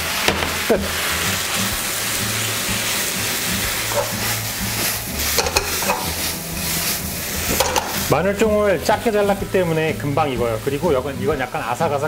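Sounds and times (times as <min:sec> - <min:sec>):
noodles sizzling in frying pan: 0:00.0 - 0:12.0
spatula scraping pan: 0:00.8 - 0:08.2.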